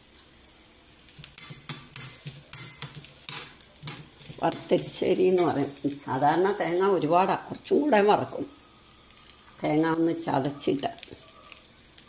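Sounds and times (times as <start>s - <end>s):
seeds frying: 0.0s - 12.0s
metal spoon scraping a pan: 1.3s - 5.9s.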